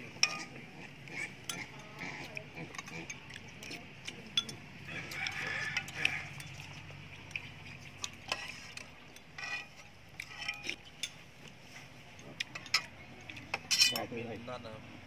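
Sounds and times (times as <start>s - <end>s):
metal ladle clinking on pot: 0.2s - 0.5s, 8.2s - 11.2s, 13.5s - 14.1s
spoons clattering in ceramic bowls: 0.2s - 0.5s, 2.7s - 6.7s, 8.3s - 11.2s, 12.5s - 14.1s.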